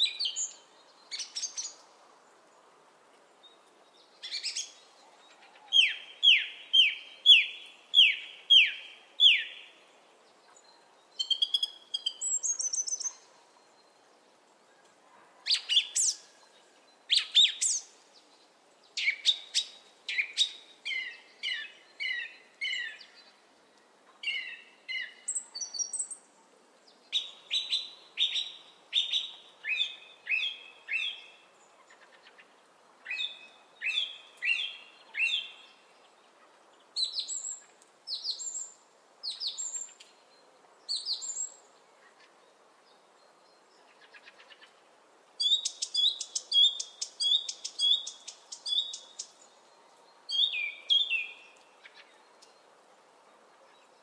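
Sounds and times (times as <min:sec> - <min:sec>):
songbird singing: 0:00.0 - 0:54.0.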